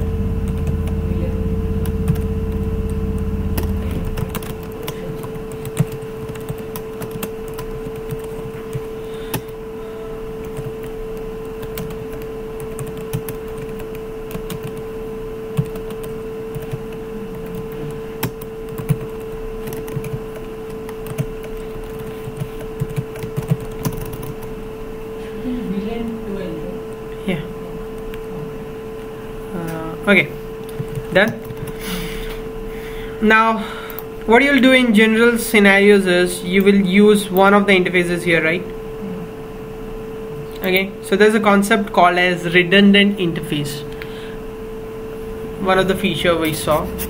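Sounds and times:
low rumble: 0:00.0 - 0:04.8
electrical hum: 0:00.0 - 0:47.0.

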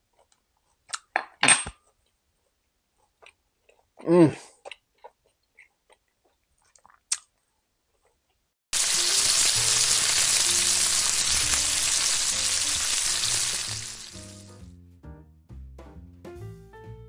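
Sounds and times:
loud sizzling hiss: 0:08.8 - 0:14.6.

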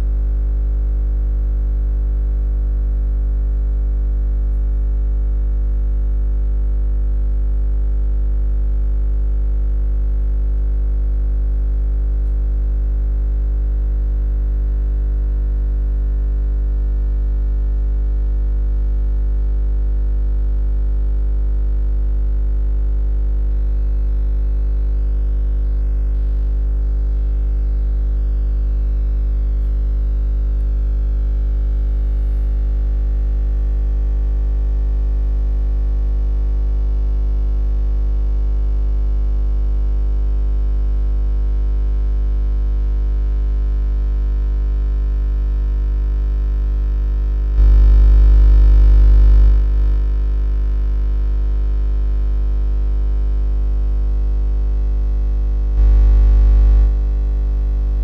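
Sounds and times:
low electronic drone: 0:47.5 - 0:49.8, 0:55.7 - 0:57.0.

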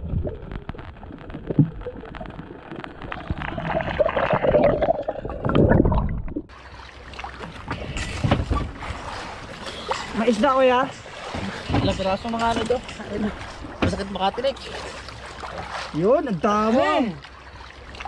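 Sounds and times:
underwater gurgling and bubbling: 0:00.0 - 0:06.7
water splashing: 0:00.0 - 0:18.0.

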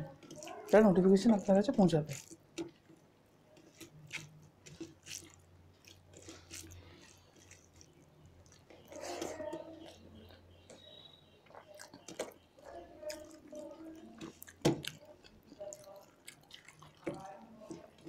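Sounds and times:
chewing: 0:00.0 - 0:18.0
fingers mixing food on steel plates: 0:00.0 - 0:18.0.

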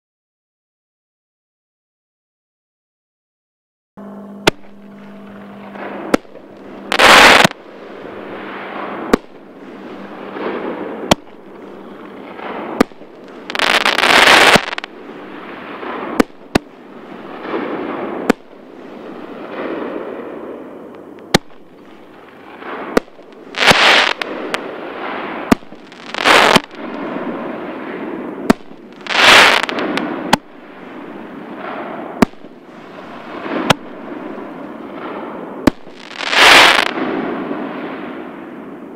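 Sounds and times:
firework shells banging: 0:21.2 - 0:24.6.

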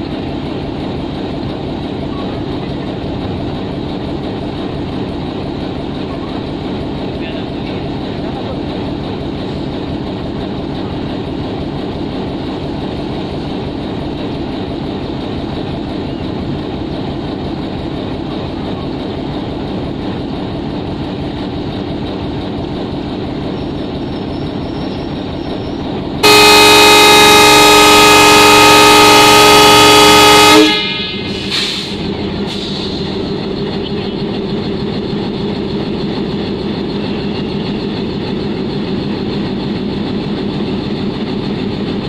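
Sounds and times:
locomotive engine rumbling: 0:00.0 - 0:42.0
locomotive air horn blast: 0:26.2 - 0:31.9.

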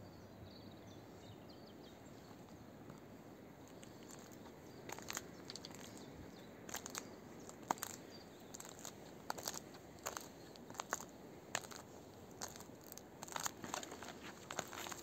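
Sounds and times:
faint outdoor background: 0:00.0 - 0:15.0
footsteps crunching on bark and twigs: 0:03.7 - 0:06.1, 0:06.7 - 0:15.0.

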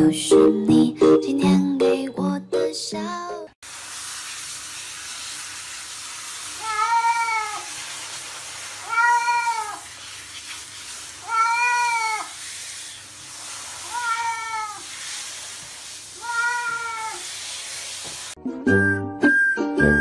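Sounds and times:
cat meowing: 0:06.6 - 0:07.7, 0:08.8 - 0:09.8, 0:11.2 - 0:12.4, 0:13.8 - 0:14.9, 0:16.2 - 0:17.3.

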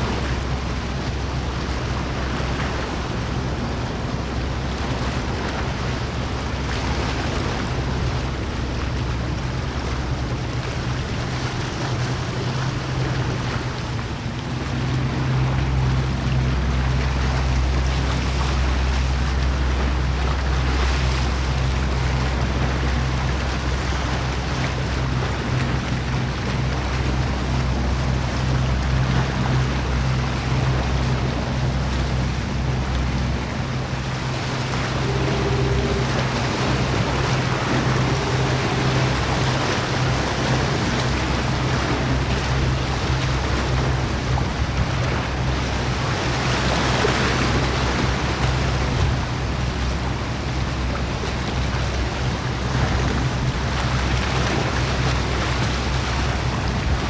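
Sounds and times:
moving water: 0:00.0 - 0:57.0
ship engine drone: 0:00.0 - 0:57.0
wind: 0:00.0 - 0:57.0.

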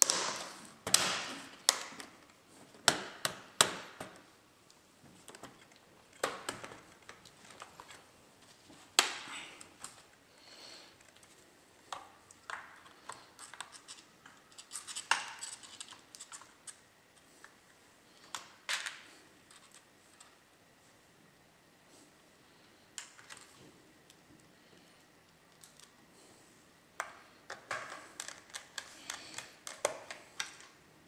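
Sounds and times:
plastic parts clicking and snapping: 0:05.2 - 0:08.0, 0:27.0 - 0:30.8.

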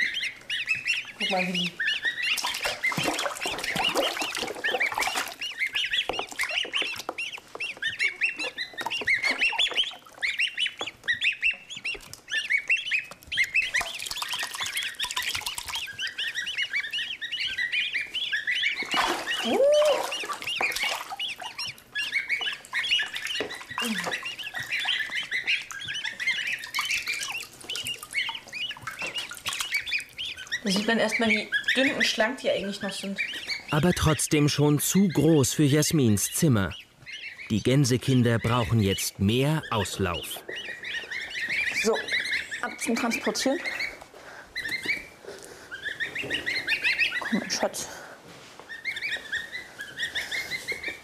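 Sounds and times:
goslings peeping: 0:00.0 - 0:51.0
water splashing in a tub: 0:02.2 - 0:07.0, 0:13.6 - 0:16.0, 0:18.8 - 0:21.8, 0:22.4 - 0:30.5.

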